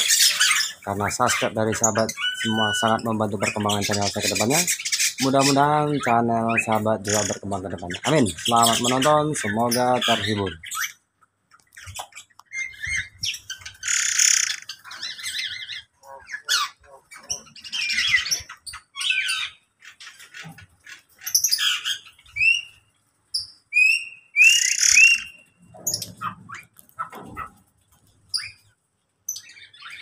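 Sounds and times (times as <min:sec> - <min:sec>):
birds chirping: 0:00.0 - 0:30.0
birds squawking: 0:00.0 - 0:30.0
rising whistled bird notes: 0:23.7 - 0:25.5.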